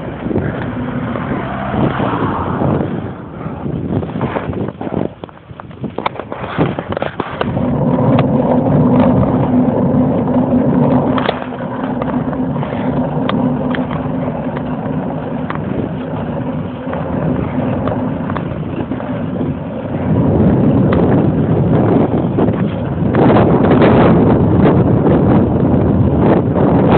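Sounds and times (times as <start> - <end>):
bicycle rolling on asphalt: 0.0 - 26.9
bicycle clicks and rattles: 4.0 - 9.5, 10.4 - 19.6.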